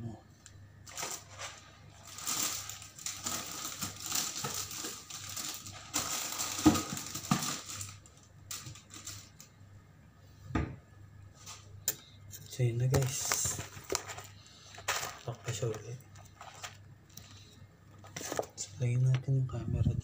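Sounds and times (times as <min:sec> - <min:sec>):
plastic packaging crinkling: 0:00.8 - 0:09.5, 0:12.8 - 0:18.6.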